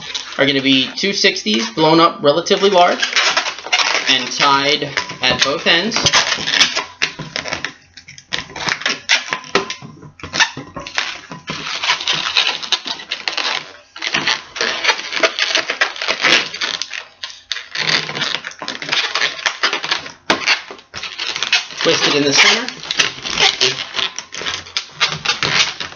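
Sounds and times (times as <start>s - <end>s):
balloons squeaking and rubbing: 0.0s - 25.9s.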